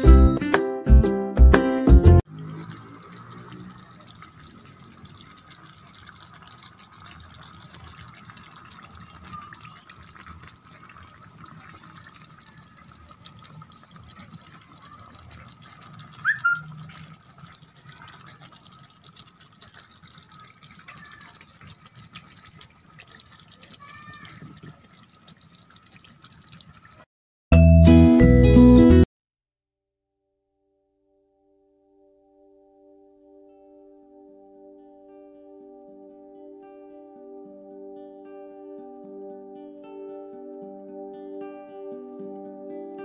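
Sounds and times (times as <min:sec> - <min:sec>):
sauce bubbling in frying pan: 0:02.2 - 0:27.1.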